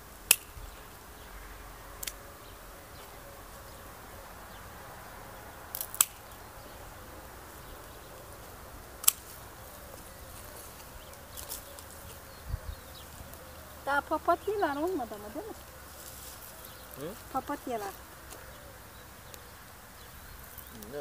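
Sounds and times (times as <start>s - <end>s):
pruning shears snipping: 0.2s - 0.6s, 2.0s - 2.2s, 5.7s - 6.4s, 9.0s - 10.1s.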